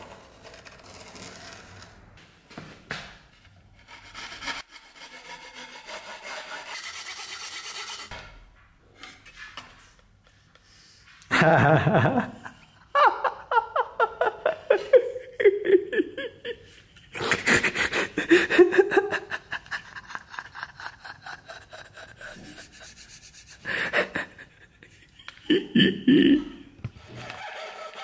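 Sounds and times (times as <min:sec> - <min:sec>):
man laughing: 0:11.3 - 0:22.8, 0:23.7 - 0:26.7.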